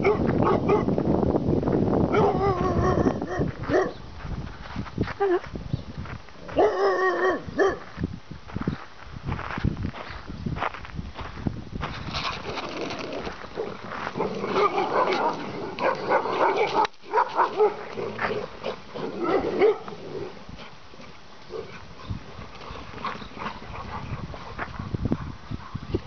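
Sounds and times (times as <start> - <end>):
dogs barking: 0.0 - 0.9, 2.1 - 4.0, 6.5 - 7.9, 13.5 - 20.0.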